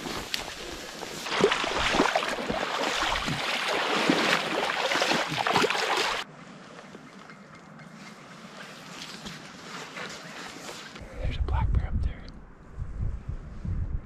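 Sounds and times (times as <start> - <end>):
clothing and vegetation rustling: 7.9 - 11.0.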